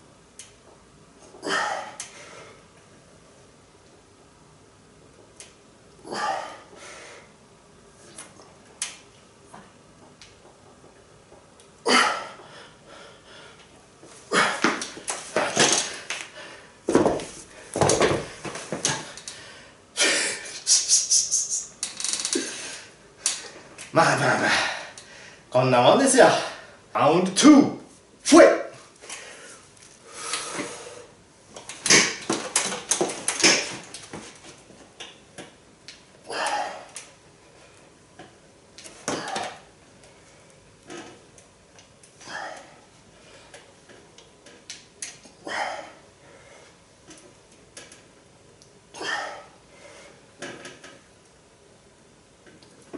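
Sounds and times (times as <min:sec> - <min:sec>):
man exhaling and grunting: 0:01.4 - 0:02.0, 0:06.0 - 0:06.8, 0:11.8 - 0:12.4, 0:14.3 - 0:14.8, 0:24.2 - 0:25.0, 0:36.2 - 0:37.0, 0:39.1 - 0:39.6, 0:42.2 - 0:42.8, 0:45.4 - 0:46.0, 0:48.9 - 0:49.6
hard breaths: 0:11.9 - 0:16.8, 0:29.0 - 0:31.2, 0:36.3 - 0:37.8, 0:45.4 - 0:46.8
dumbbells thumping on floor: 0:16.9 - 0:19.0.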